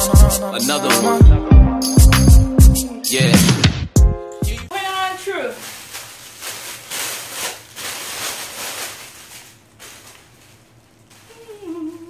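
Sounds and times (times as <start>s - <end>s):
person humming: 0.0s - 1.6s, 11.3s - 12.0s
plastic bag crinkling: 4.8s - 12.0s.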